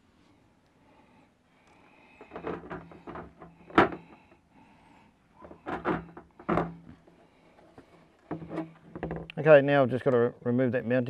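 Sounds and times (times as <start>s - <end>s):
hard knocks and clunks: 2.2s - 4.4s, 5.4s - 7.2s, 8.3s - 9.4s.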